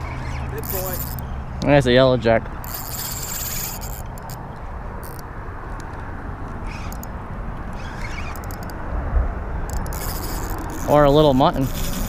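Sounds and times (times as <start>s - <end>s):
fishing reel clicks: 0.1s - 1.3s, 2.6s - 4.4s, 5.0s - 5.3s, 6.6s - 7.1s, 7.7s - 8.8s, 9.7s - 12.0s
wind on microphone: 7.8s - 12.0s.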